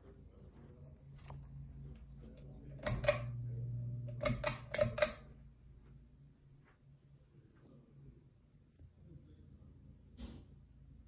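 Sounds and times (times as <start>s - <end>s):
ceiling fan motor humming: 0.3s - 6.1s
sharp clicks: 2.8s - 3.4s, 4.1s - 5.2s.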